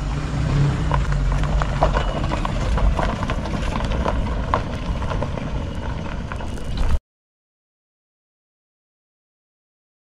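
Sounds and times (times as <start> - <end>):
engine rumbling: 0.0 - 7.0
gravel crunching: 0.0 - 7.0.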